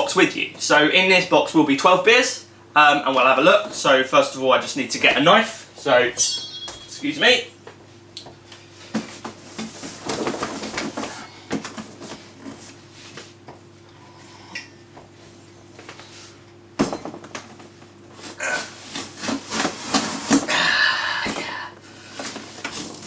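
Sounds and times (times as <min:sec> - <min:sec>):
faint steady hum: 0:00.0 - 0:23.0
metal sword clinking and knocking: 0:06.2 - 0:07.0.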